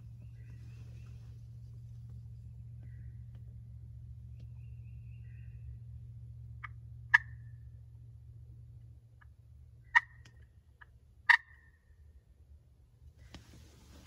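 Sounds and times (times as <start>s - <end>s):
turkey clucks: 6.6s - 7.4s, 9.2s - 11.7s.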